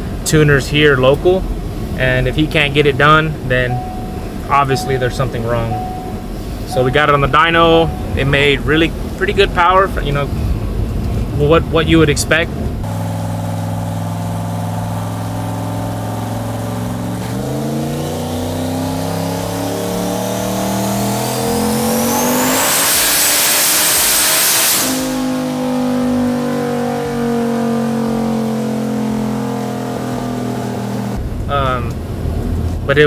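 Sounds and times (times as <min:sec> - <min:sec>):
turbo whistle: 0:03.6 - 0:08.5
engine revving on a dyno: 0:12.8 - 0:31.2.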